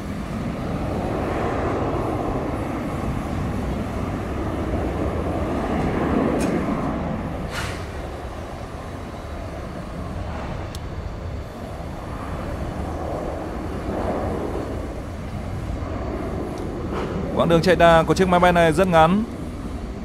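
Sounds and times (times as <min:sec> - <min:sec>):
distant jet taking off: 0:00.0 - 0:20.0.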